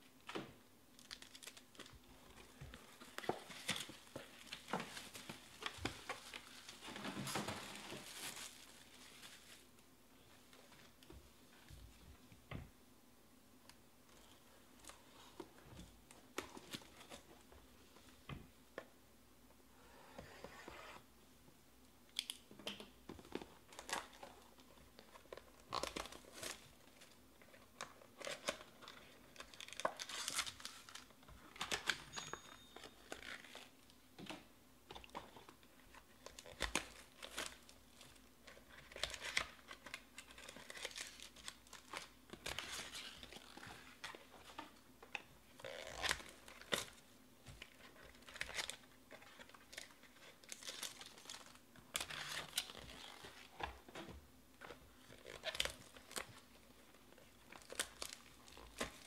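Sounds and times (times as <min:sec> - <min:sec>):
wrappers being torn and crinkled: 0:01.0 - 0:01.9, 0:28.2 - 0:32.0, 0:36.2 - 0:38.0, 0:38.8 - 0:44.1, 0:48.1 - 0:53.4, 0:55.0 - 0:56.4, 0:57.5 - 0:59.0.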